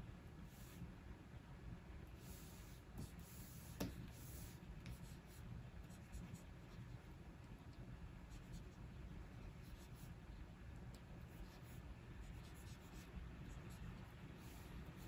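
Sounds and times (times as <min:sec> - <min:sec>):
stylus tap: 0:03.8 - 0:04.0
stylus scratching on screen: 0:10.9 - 0:15.0.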